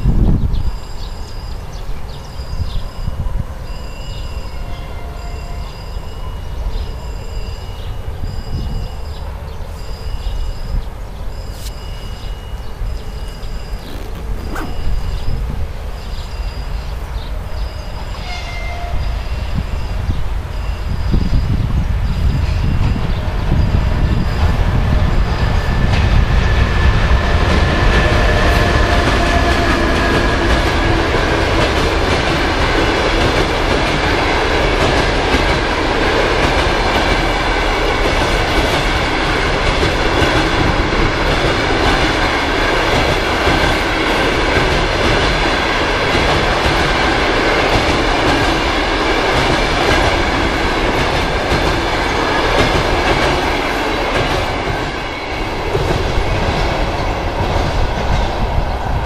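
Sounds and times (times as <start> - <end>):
electric locomotive rumbling past: 0.0 - 59.0
passenger coaches rolling by: 0.0 - 59.0
thin wheel squeal: 11.3 - 15.4.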